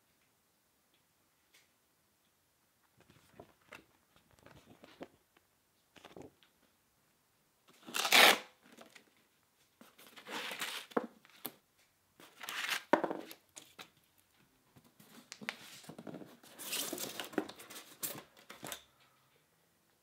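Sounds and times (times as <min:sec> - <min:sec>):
hook-and-loop straps ripping: 0:07.8 - 0:08.5.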